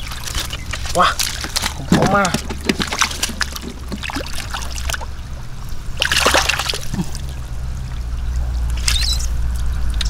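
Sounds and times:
big water splash: 0.0s - 8.0s
shallow water splashing: 0.0s - 10.0s.

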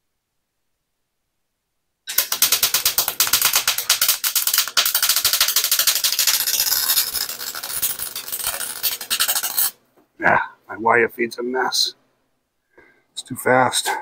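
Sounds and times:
welding arc crackling: 2.1s - 9.8s.

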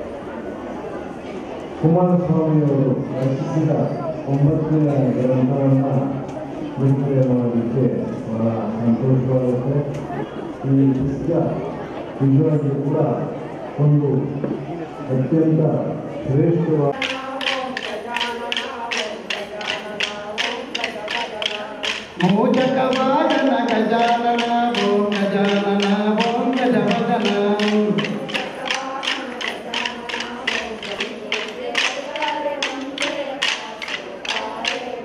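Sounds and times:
group singing folk song: 16.9s - 35.0s
wooden sticks clacking: 17.0s - 35.0s.

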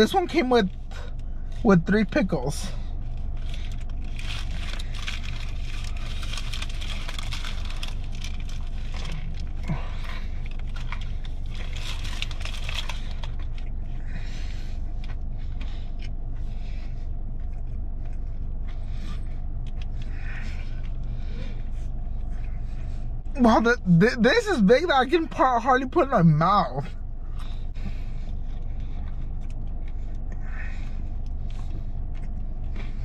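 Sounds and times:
steady low hum: 0.0s - 33.0s
paper wrapper crackling: 3.3s - 9.6s, 10.4s - 13.6s.

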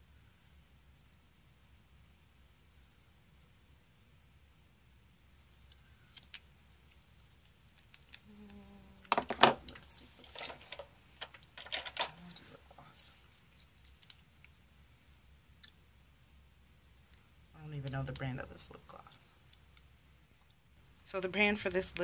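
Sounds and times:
plastic packaging clicks and clatter: 9.1s - 12.1s.

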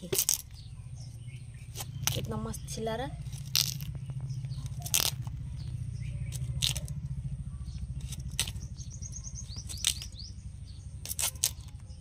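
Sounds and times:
bird chirping: 0.0s - 12.0s
steady low hum: 0.0s - 12.0s
knife scraping fruit skin: 1.6s - 2.3s, 4.6s - 5.7s, 6.3s - 7.0s, 7.9s - 10.2s, 11.0s - 12.0s.

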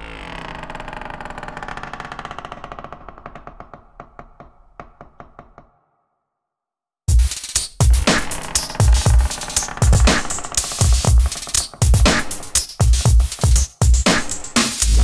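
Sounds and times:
fast clicking beat: 7.1s - 15.0s
heavy electronic drums and bass: 7.1s - 15.0s.

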